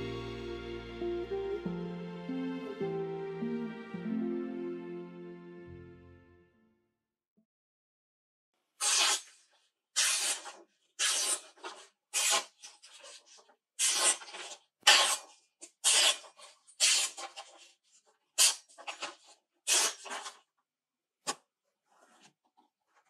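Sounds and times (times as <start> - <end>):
knife slicing paper: 8.8 - 17.8, 18.4 - 20.4.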